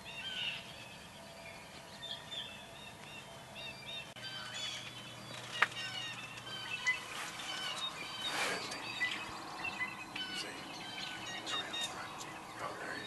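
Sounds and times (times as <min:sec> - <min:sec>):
birds chirping and whistling: 0:00.0 - 0:13.0.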